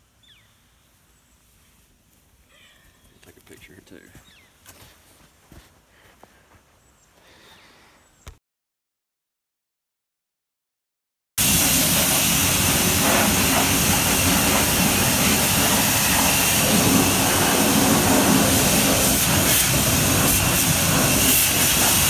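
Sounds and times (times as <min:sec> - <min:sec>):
pressure washer spraying water: 0:11.4 - 0:22.0.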